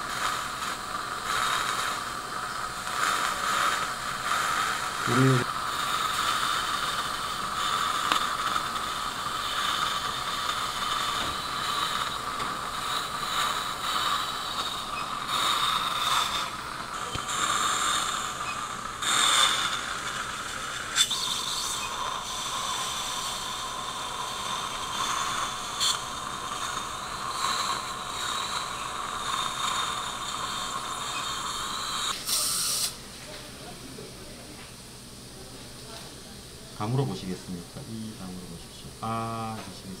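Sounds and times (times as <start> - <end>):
surgical drill whining: 0.0 - 32.2
surgical suction hiss: 0.0 - 33.0.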